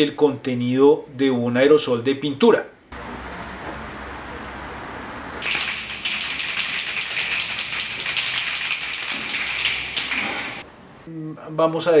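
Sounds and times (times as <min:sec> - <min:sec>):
spray can hissing: 0:05.4 - 0:10.6.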